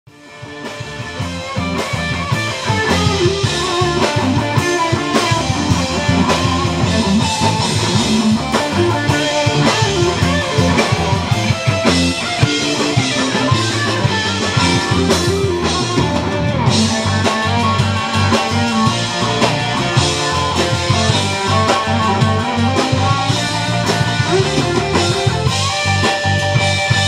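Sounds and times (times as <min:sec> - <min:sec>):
guitar-led rock music: 0:00.1 - 0:27.0.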